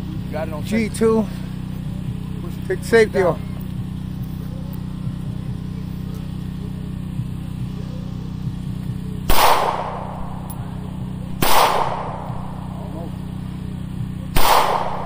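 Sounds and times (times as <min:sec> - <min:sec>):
steady low hum: 0:00.0 - 0:15.0
pistol shots with echo: 0:09.3 - 0:10.7, 0:11.3 - 0:12.8, 0:14.3 - 0:15.0.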